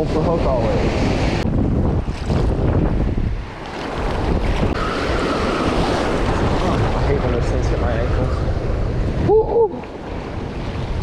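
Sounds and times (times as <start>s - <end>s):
wind buffeting microphone: 0.0s - 11.0s
waves breaking on beach: 2.0s - 11.0s.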